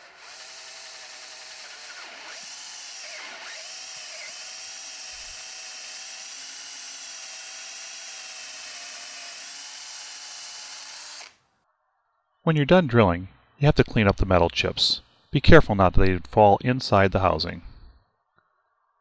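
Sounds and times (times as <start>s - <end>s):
power drill drilling metal: 0.0s - 11.4s.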